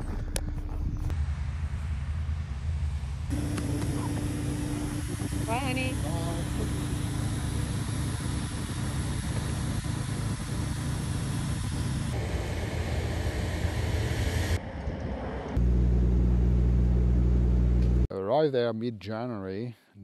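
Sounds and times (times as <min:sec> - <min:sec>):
engine and wind rumble: 0:00.0 - 0:18.1
turboprop engines droning in cabin: 0:00.0 - 0:18.1.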